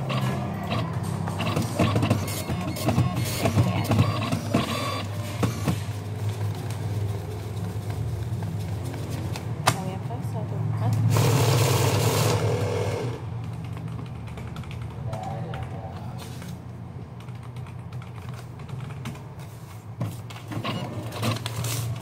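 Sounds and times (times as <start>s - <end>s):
paper being folded: 5.8s - 9.5s.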